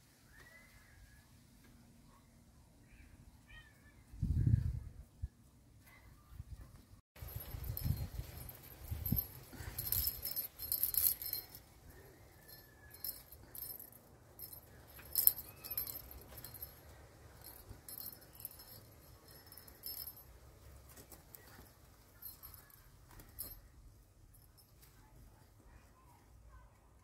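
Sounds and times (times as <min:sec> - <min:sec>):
bell in toy ball jingling: 0:07.2 - 0:23.7.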